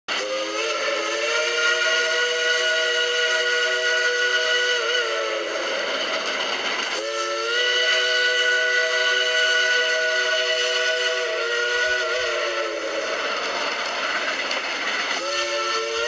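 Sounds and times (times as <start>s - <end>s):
steam whistle blowing chord: 0.1s - 6.2s, 6.9s - 13.4s, 15.1s - 16.0s.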